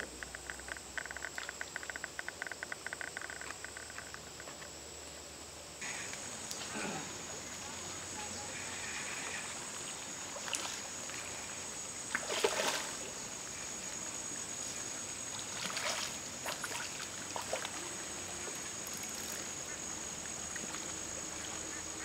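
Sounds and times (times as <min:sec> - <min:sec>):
fish splashing at surface: 0:12.1 - 0:13.1, 0:15.3 - 0:17.8.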